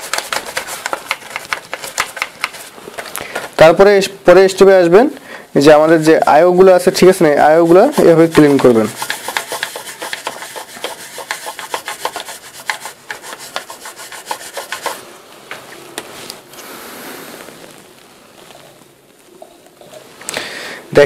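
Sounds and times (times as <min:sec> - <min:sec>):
toothbrush scrubbing: 0:00.0 - 0:03.5, 0:07.3 - 0:15.0
cloth rustle: 0:15.0 - 0:19.4.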